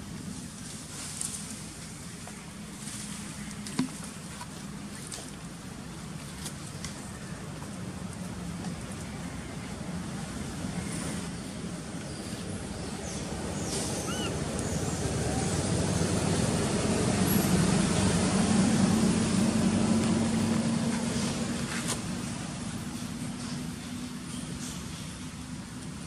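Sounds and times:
vehicle engine droning past: 12.9 - 21.8.

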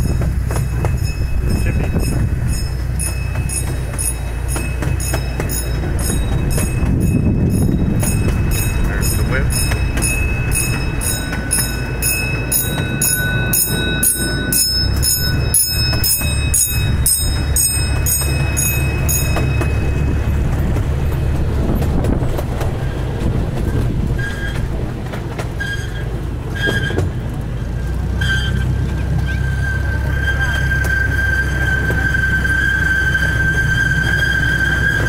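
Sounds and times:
miniature train rumbling: 0.0 - 35.0
bell ringing: 0.6 - 21.5.

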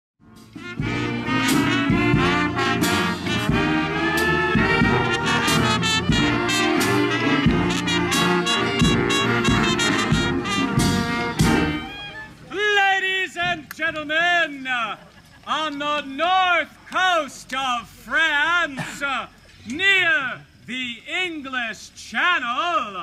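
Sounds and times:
brass band playing: 0.2 - 12.4
percussion hits: 0.4 - 11.9.

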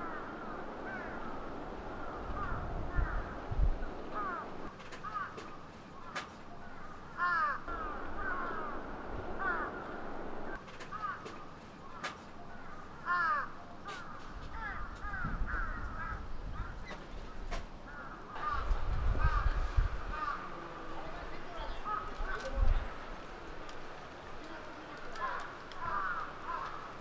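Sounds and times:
birds calling: 0.0 - 27.0
low rumble: 7.6 - 10.6.

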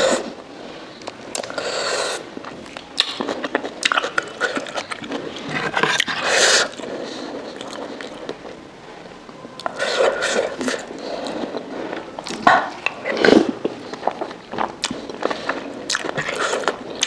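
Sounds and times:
chewing with wet mouth clicks: 1.0 - 1.6, 2.4 - 6.9, 13.6 - 17.0.

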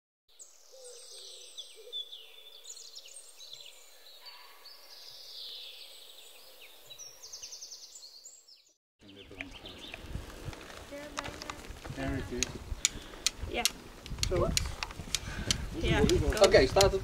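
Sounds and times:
birds chirping and whistling: 0.3 - 10.5.

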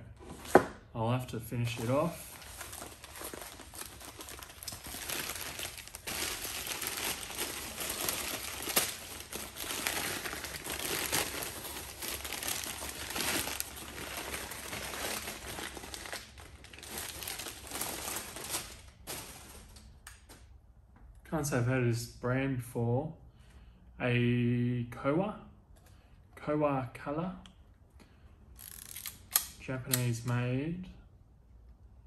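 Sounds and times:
newspaper crumpling and rustling: 1.6 - 19.8.

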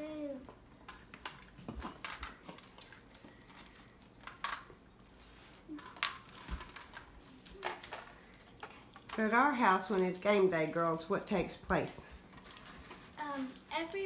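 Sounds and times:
snacks dropping onto plastic plates: 0.8 - 4.8, 5.8 - 10.6.

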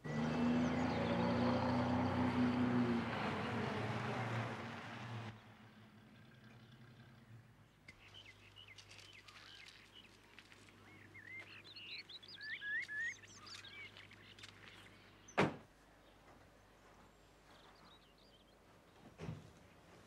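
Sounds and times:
songbirds chirping and warbling: 0.0 - 3.6, 5.8 - 19.9
loud thump: 15.4 - 15.6.

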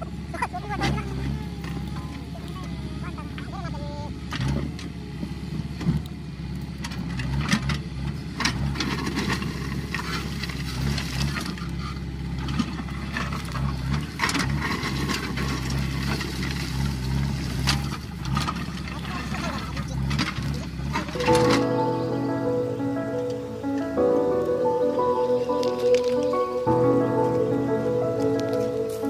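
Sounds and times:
diesel engine running under load: 0.0 - 29.0
rocks clattering and scraping: 8.8 - 21.2.

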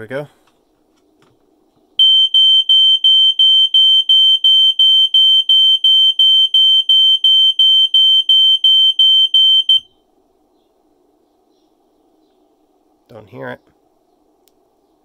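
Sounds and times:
smoke alarm high beeps: 2.0 - 9.9.

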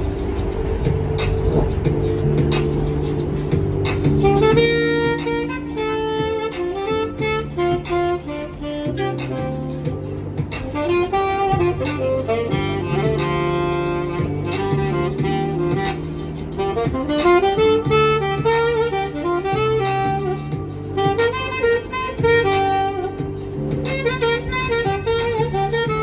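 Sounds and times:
long-held low accompaniment notes: 0.0 - 26.0
saxophone jazz melody: 0.0 - 26.0.

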